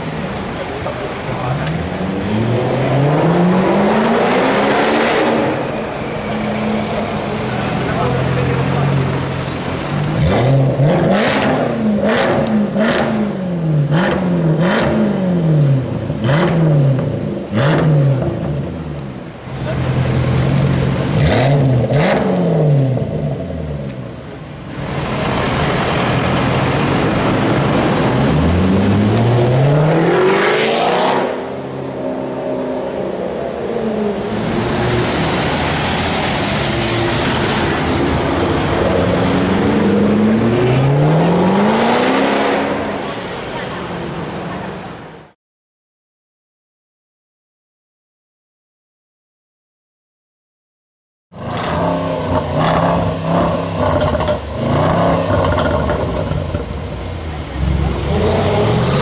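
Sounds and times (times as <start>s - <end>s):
car engine revving: 1.6s - 8.5s, 10.1s - 24.1s, 24.7s - 44.2s, 51.3s - 59.0s
car accelerating away: 25.0s - 43.7s.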